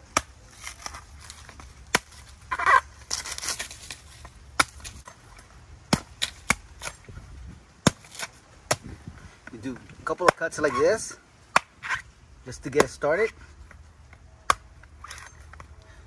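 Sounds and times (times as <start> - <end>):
machete chopping coconut husk: 0.0 - 5.2, 5.9 - 7.1, 7.8 - 13.4, 14.4 - 15.3.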